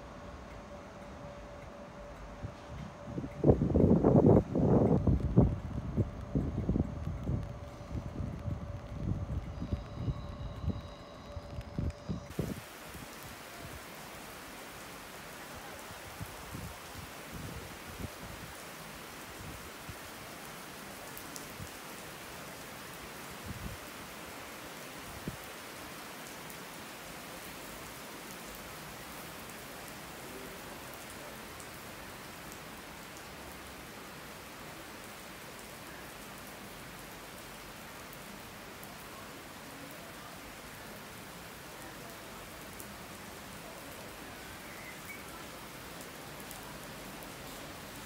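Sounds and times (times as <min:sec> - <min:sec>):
heavy rain on canopy: 0:00.0 - 0:48.0.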